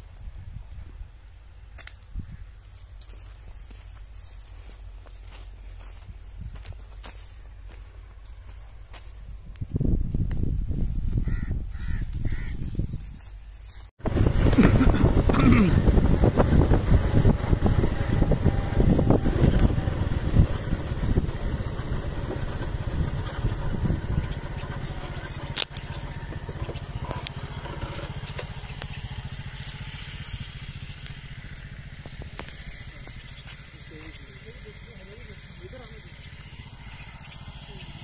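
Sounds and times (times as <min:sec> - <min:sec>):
road rumble: 0:00.0 - 0:38.0
wind: 0:00.0 - 0:38.0
small motorcycle engine running: 0:03.0 - 0:09.8, 0:14.0 - 0:38.0.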